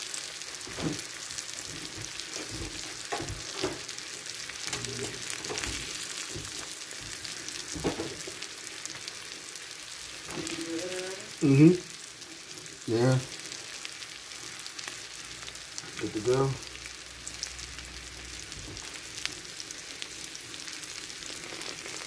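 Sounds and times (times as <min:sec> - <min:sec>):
steak sizzling: 0:00.0 - 0:22.0
fat crackling: 0:00.9 - 0:09.2, 0:20.2 - 0:22.0.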